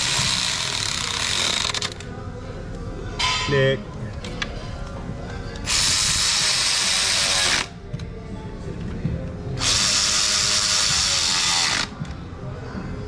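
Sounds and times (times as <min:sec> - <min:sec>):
electric ratchet whirring: 0:00.0 - 0:02.0, 0:05.7 - 0:07.7, 0:09.6 - 0:12.0.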